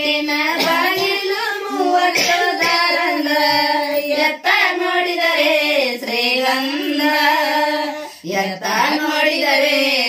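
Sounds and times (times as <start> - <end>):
women singing unaccompanied: 0.0 - 10.0.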